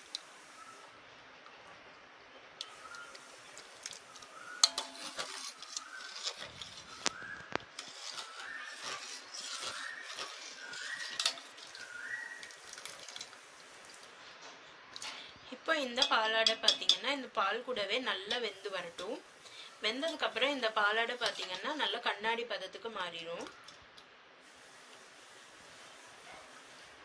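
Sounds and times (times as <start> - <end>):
ladle scraping steel pot: 3.9 - 13.4, 15.8 - 19.0, 20.1 - 22.0.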